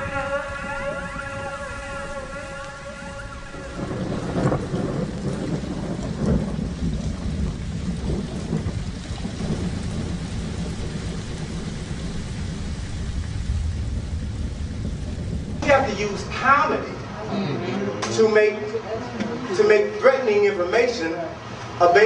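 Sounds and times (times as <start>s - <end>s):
synthesizer music sliding tones: 0.0s - 4.6s
rumbling audience noise: 13.4s - 20.0s.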